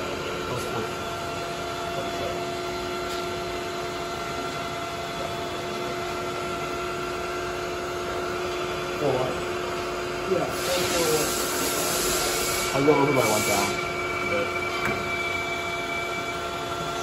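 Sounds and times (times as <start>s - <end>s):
metal lathe whining: 0.0s - 17.0s.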